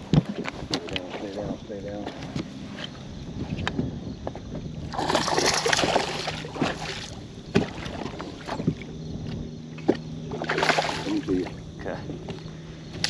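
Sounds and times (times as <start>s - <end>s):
fish splashing in water: 4.9s - 8.9s, 9.8s - 11.5s.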